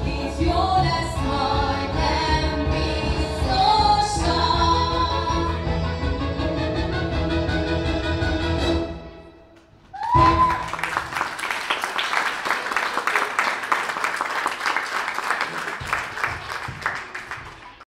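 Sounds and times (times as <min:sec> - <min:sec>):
dance music: 0:00.0 - 0:07.8
brief cry: 0:09.9 - 0:10.9
audience applause: 0:10.0 - 0:17.9.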